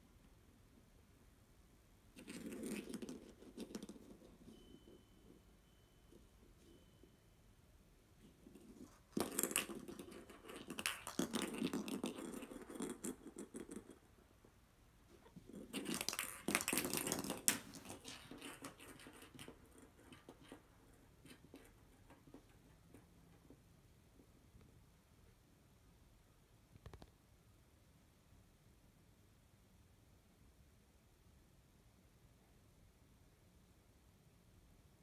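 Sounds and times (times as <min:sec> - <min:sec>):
plastic ball rolling on wooden floor: 0:08.4 - 0:14.0, 0:15.1 - 0:23.6.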